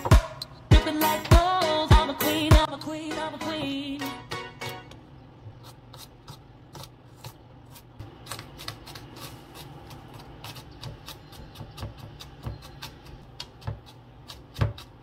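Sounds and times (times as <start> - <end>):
knife chopping on plastic board: 8.1 - 15.0.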